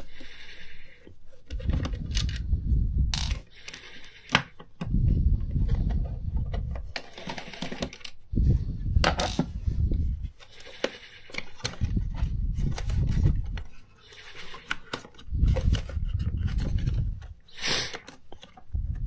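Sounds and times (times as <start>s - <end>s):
plastic clicks and rubbing: 10.4s - 19.0s.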